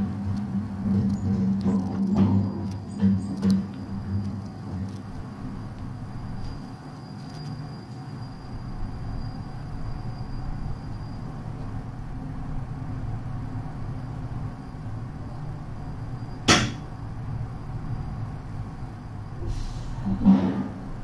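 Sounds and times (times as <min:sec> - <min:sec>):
low hum of cable car machinery: 0:00.0 - 0:21.0
sharp clack: 0:16.5 - 0:16.9.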